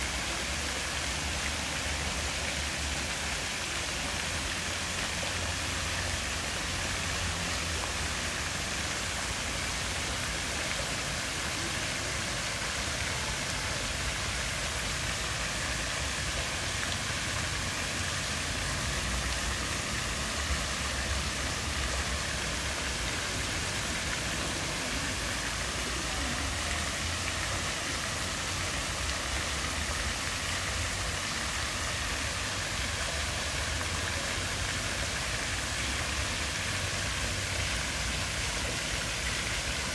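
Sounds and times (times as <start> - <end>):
fountain jets splashing into pool: 0.0 - 39.9.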